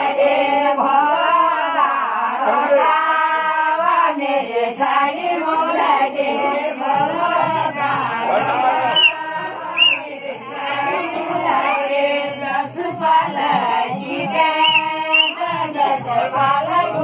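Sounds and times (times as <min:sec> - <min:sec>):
women singing folk song in chorus: 0:00.0 - 0:17.0.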